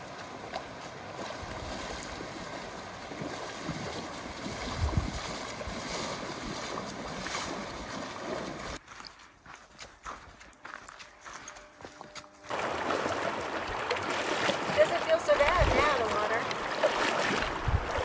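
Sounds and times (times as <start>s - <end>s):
stream rushing: 0.0s - 8.8s, 12.5s - 18.0s
legs wading and splashing water: 0.0s - 9.2s, 12.1s - 18.0s.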